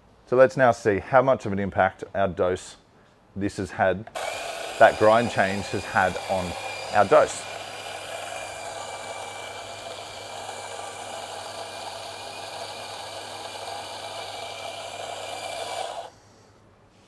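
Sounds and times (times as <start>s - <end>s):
coffee grinder running: 4.2s - 16.1s.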